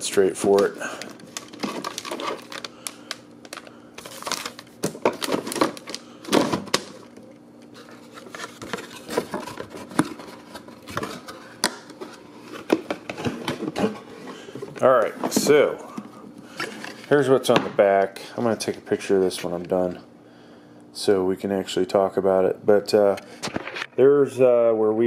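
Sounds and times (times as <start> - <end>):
cardboard and plastic rustling: 0.0 - 17.6.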